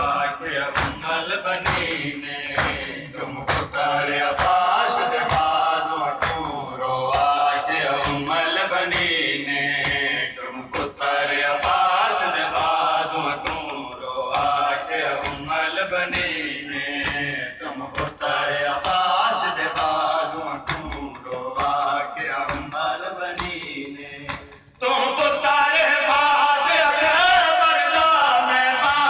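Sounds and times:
chest-beating slaps: 0.0 - 24.7
men chanting in rhythm: 0.0 - 29.0.

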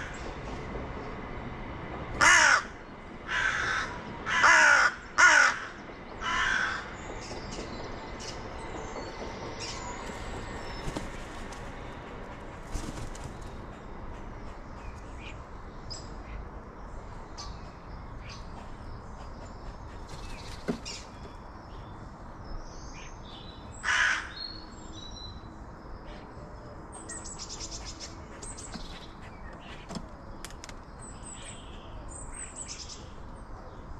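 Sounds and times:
crow cawing: 2.2 - 6.9, 23.8 - 24.4
small birds chirping: 6.8 - 33.9.

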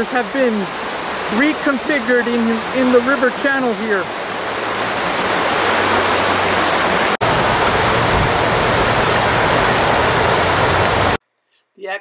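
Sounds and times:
river water over rocks: 0.0 - 11.2.

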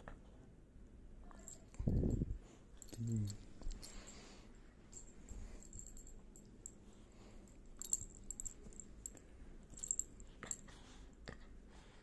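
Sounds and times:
dog collar tags jingling: 7.5 - 10.7.

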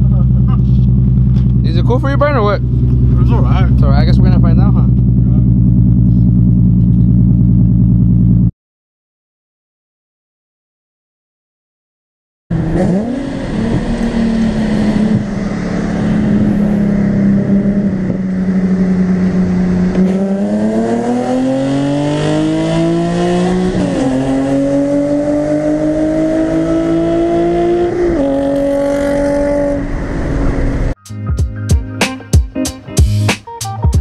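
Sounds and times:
car engine revving: 0.0 - 8.5, 12.5 - 31.0.

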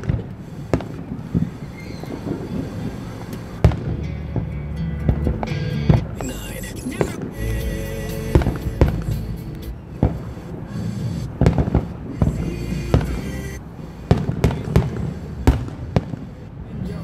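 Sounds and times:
music playing: 3.6 - 10.1, 12.2 - 13.6
firework shells bursting: 8.3 - 12.1.

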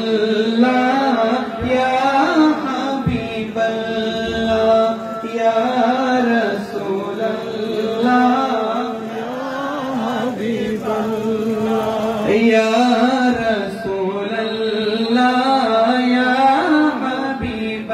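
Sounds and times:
man singing devotional song: 0.0 - 17.9.

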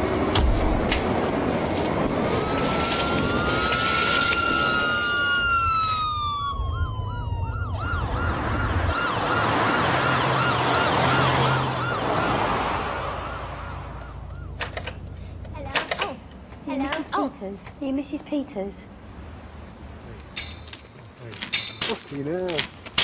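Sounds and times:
emergency vehicle siren: 0.0 - 15.2.

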